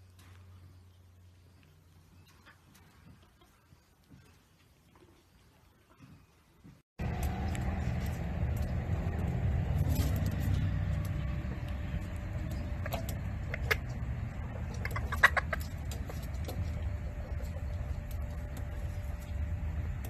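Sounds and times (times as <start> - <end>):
steady low rumble: 7.0 - 20.0
rooster clucking: 12.5 - 18.3.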